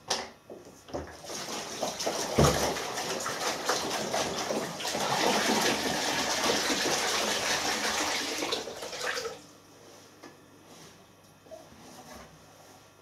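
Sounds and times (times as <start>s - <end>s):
water sloshing in washing machine drum: 1.0s - 9.5s.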